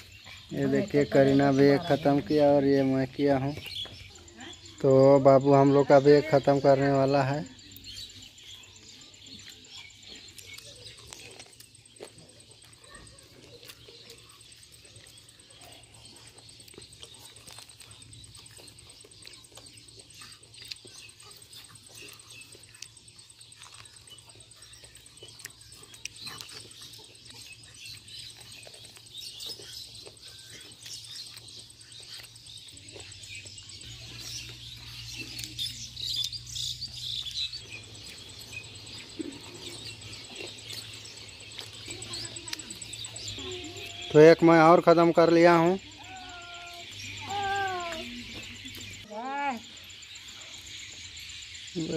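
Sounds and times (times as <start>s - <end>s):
birds chirping: 0.0s - 51.9s
high insect drone: 35.8s - 51.9s.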